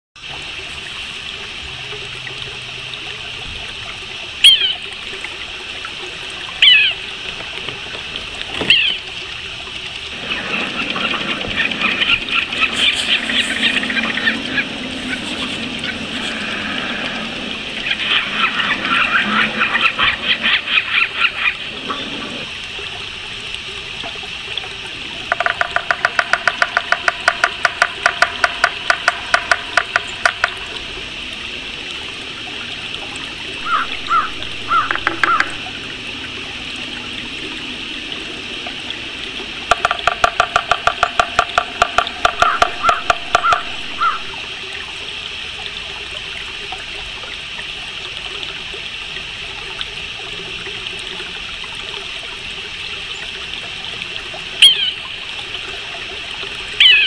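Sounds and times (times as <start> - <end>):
birds calling: 6.6 - 7.1, 8.6 - 9.1, 10.2 - 22.4, 33.6 - 36.0, 39.7 - 44.4, 54.6 - 55.1, 56.8 - 57.0
steady hiss: 9.7 - 40.1.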